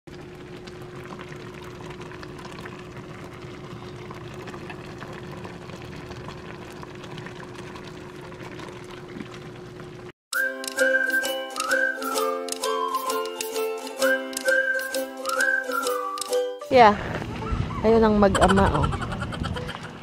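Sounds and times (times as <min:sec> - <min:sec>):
liquid bubbling in a pan: 0:00.1 - 0:10.1
music with whistled tune: 0:10.3 - 0:17.8.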